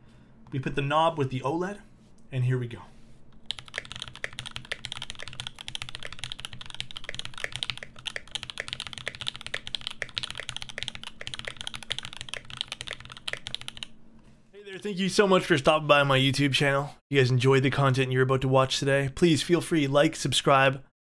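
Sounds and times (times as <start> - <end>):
mechanical keyboard typing: 3.4 - 13.9.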